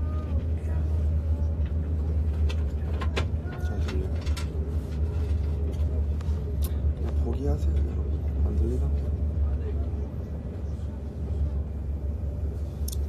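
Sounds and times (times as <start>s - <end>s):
train running rumble: 0.0s - 13.0s.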